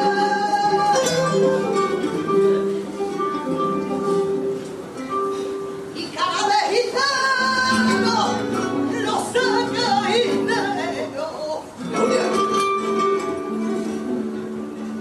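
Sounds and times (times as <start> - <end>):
person singing: 0.0 - 2.4
flamenco guitar: 0.0 - 15.0.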